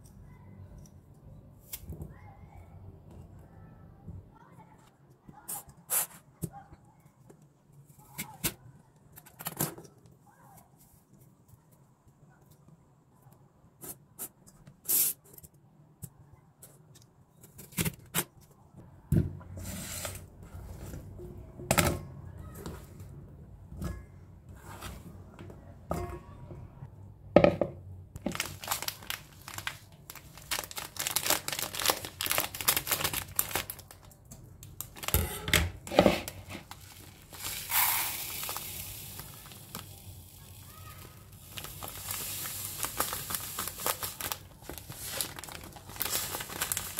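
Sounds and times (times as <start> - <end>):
crinkling and rustling: 28.2 - 46.9
grain pouring into colander: 36.4 - 46.9.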